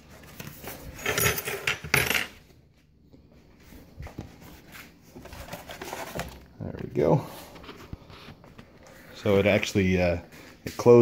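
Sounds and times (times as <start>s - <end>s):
metal tools clattering: 0.8s - 2.4s.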